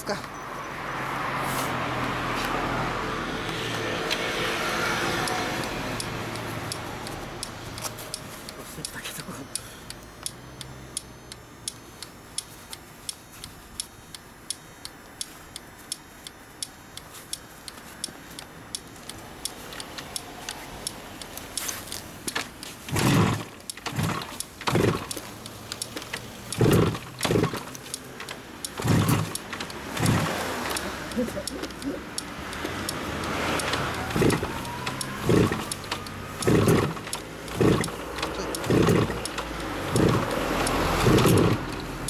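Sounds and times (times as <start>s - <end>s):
motorcycle engine turning over: 1.1s - 8.9s, 17.2s - 42.0s
light ticking: 3.4s - 42.0s.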